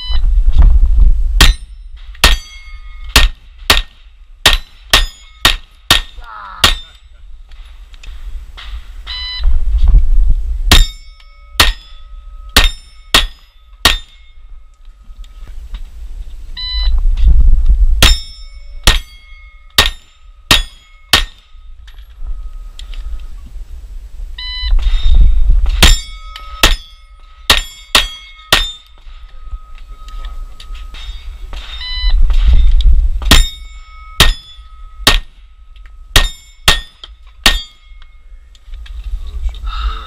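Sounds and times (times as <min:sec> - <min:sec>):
wind rumble on microphone: 0:00.0 - 0:04.5, 0:07.1 - 0:12.6, 0:14.2 - 0:19.6, 0:21.4 - 0:27.5, 0:28.7 - 0:36.2, 0:38.2 - 0:40.0
steel target plates ringing: 0:01.4 - 0:07.2, 0:10.7 - 0:15.4, 0:18.0 - 0:22.8, 0:24.8 - 0:38.5
shot timer beep: 0:09.1 - 0:09.4, 0:16.6 - 0:17.0, 0:31.8 - 0:32.2.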